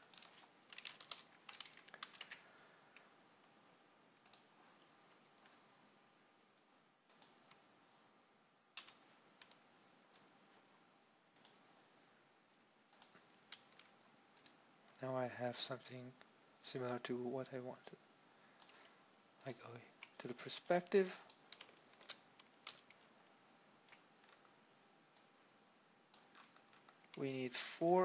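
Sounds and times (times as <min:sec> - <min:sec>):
computer mouse and keyboard clicks: 0:00.0 - 0:02.4, 0:08.8 - 0:10.3, 0:21.2 - 0:24.6, 0:26.1 - 0:27.2
room hiss: 0:00.0 - 0:28.0.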